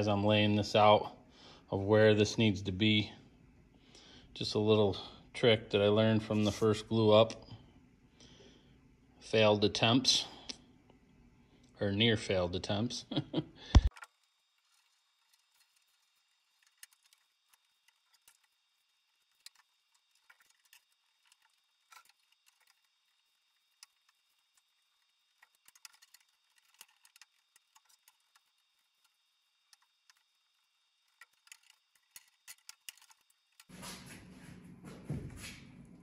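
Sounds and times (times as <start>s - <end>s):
wooden strips clicking and tapping: 13.8s - 33.7s.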